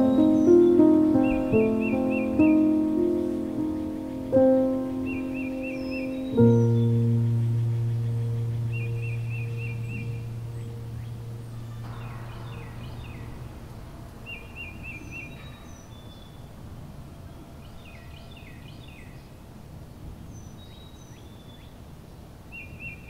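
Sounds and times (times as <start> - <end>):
bird trilling: 0.0 - 13.6
background music: 0.0 - 13.9
birds chirping: 0.0 - 19.4.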